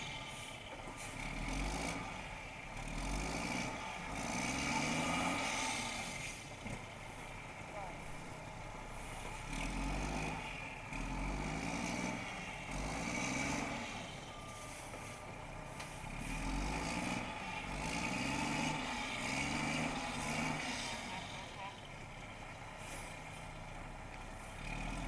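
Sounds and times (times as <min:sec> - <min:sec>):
diesel truck engine revving: 0:00.0 - 0:25.0.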